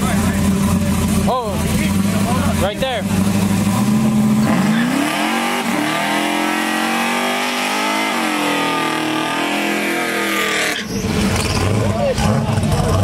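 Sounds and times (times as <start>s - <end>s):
low engine rumble: 0.0s - 4.7s, 10.3s - 13.0s
car engine at high revs: 0.0s - 13.0s.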